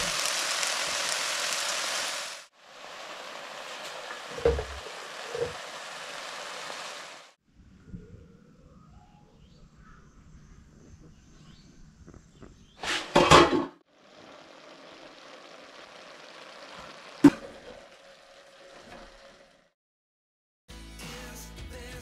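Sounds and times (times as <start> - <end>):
steady cooking hiss: 0.0 - 7.4, 13.9 - 19.5.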